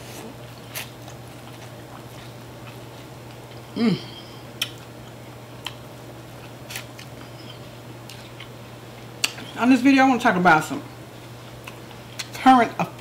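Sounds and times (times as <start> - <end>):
steady low hum: 0.0 - 13.0
person humming mm: 3.7 - 4.4.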